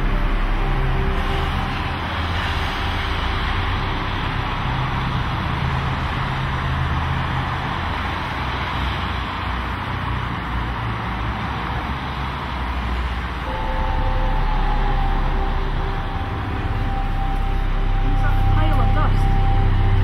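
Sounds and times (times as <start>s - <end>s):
low rumble: 0.0s - 8.6s, 13.4s - 20.0s
steady rushing noise: 0.0s - 20.0s.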